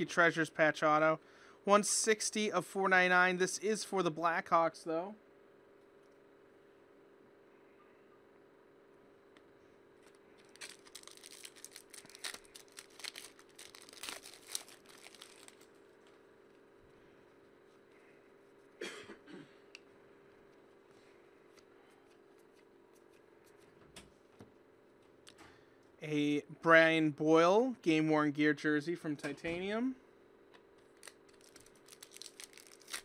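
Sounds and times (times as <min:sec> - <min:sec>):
trading cards rustling and snapping: 0:10.0 - 0:15.7, 0:31.0 - 0:33.0
short cough: 0:18.8 - 0:19.7.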